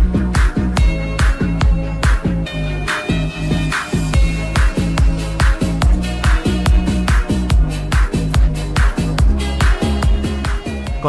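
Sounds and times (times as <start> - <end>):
deep kick drum: 0.0 - 2.5, 4.2 - 11.0.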